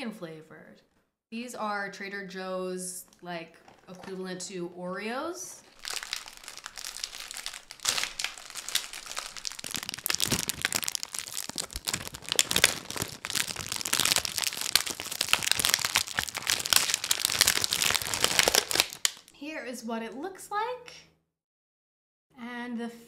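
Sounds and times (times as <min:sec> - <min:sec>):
plastic wrapper crinkling: 0:05.6 - 0:19.4.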